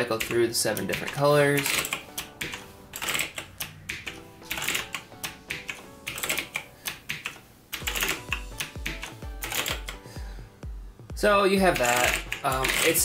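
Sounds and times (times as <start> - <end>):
background music: 0.0 - 13.0
mechanical keyboard clicks: 0.1 - 10.0, 11.7 - 13.0
bass beat: 10.3 - 11.8.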